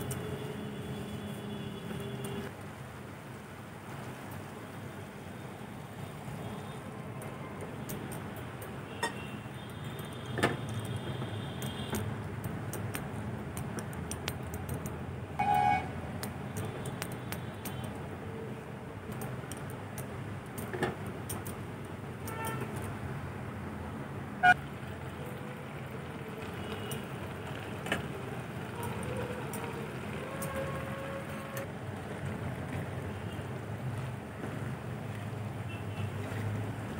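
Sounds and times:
milk simmering in wok: 0:24.6 - 0:35.6.

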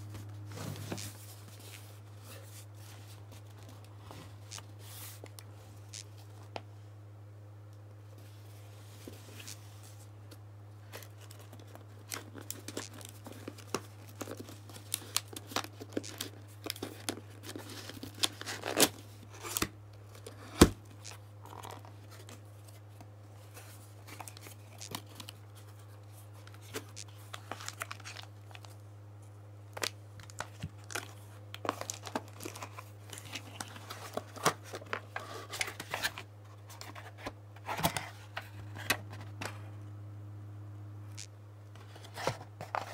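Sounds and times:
steady low hum: 0:00.0 - 0:42.9
packing tape tearing: 0:11.1 - 0:20.7.

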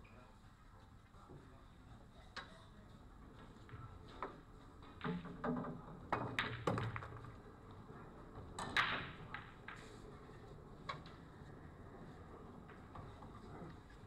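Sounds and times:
pool balls clicking: 0:03.6 - 0:11.2
cue striking ball: 0:05.0 - 0:07.4, 0:08.6 - 0:09.9.

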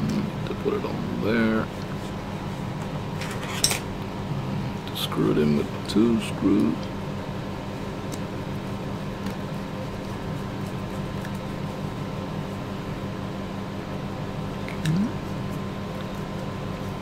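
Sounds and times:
steady background hum: 0:00.0 - 0:17.0
person humming: 0:14.8 - 0:15.3.

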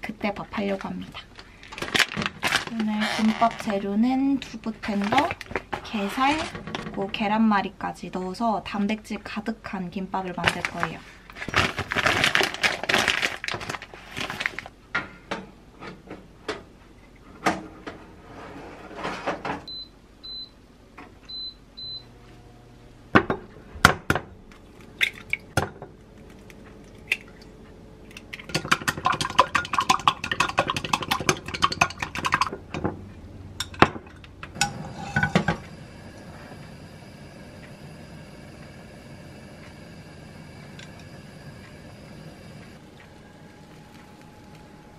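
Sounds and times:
plastic packaging rustling: 0:01.2 - 0:03.8, 0:10.5 - 0:14.7, 0:42.8 - 0:44.9
short appliance beeps: 0:19.7 - 0:20.6, 0:21.3 - 0:22.1
eggs beaten clinking glass: 0:28.5 - 0:32.5.

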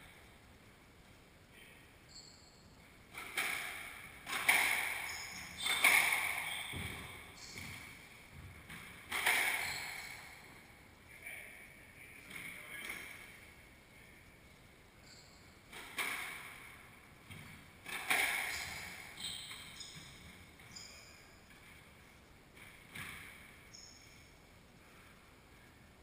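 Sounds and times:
squash ball hits echoing: 0:03.1 - 0:10.3, 0:15.7 - 0:19.2
sneakers squeaking on hardwood: 0:04.1 - 0:10.5, 0:15.0 - 0:16.5, 0:17.2 - 0:22.0, 0:22.6 - 0:24.3.

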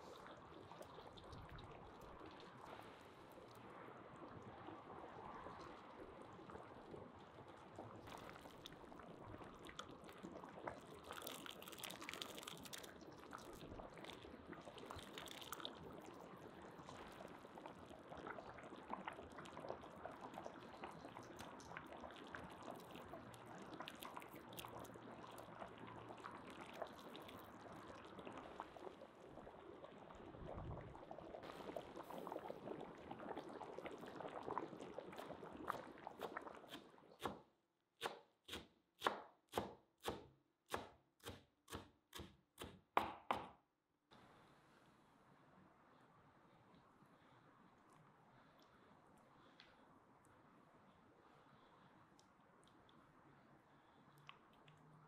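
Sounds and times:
thick liquid boiling and bubbling: 0:00.0 - 0:42.8, 0:44.1 - 0:55.0
ladle stirring liquid: 0:08.0 - 0:28.6, 0:31.7 - 0:37.4.

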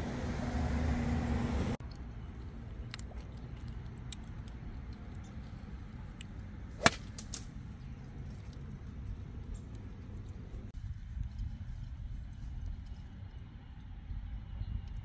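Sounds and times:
golf club striking ball: 0:06.8 - 0:07.5.

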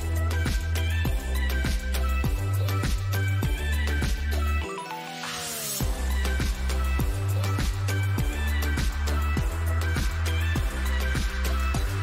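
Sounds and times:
deep bass: 0:05.8 - 0:12.0.

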